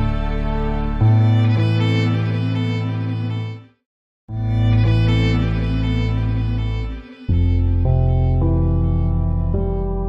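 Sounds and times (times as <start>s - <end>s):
slow violin music: 0.0s - 10.0s.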